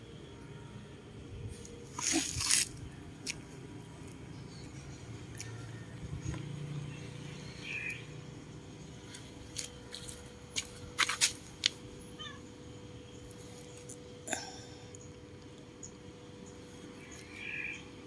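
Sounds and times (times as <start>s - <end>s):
cat meowing: 12.2s - 12.4s.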